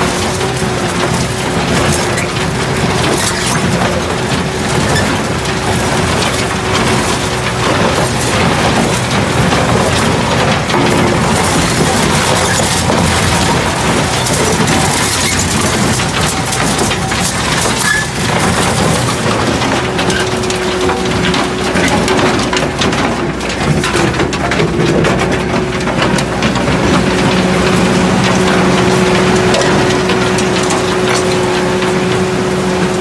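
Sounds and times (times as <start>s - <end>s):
clatter of concrete breaking: 0.0s - 33.0s
crusher engine humming: 0.0s - 33.0s.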